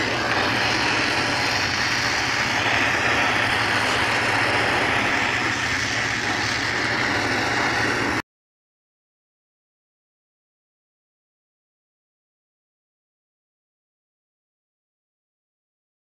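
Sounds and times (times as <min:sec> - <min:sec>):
torch flame hissing: 0:00.0 - 0:08.2.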